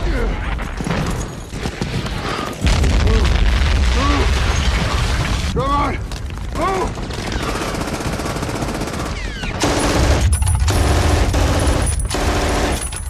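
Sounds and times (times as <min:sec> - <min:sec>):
rifle and machine-gun fire: 0:06.6 - 0:13.0.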